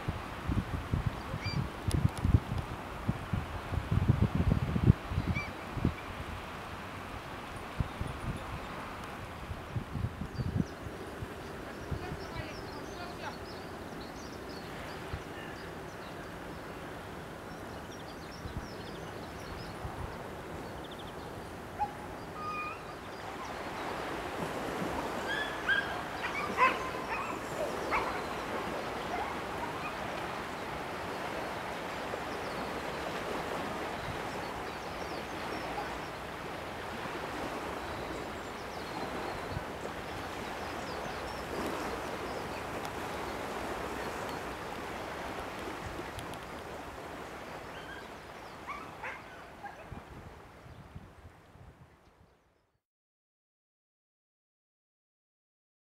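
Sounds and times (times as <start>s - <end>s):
outdoor background noise: 0.0s - 52.5s
squeaky animal yips: 22.4s - 22.9s.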